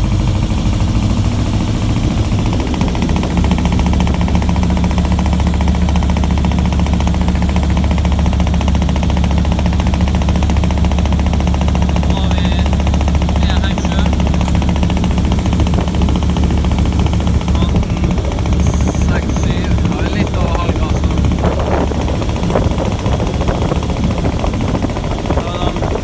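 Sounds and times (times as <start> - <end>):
boat engine revving up: 0.0 - 26.0.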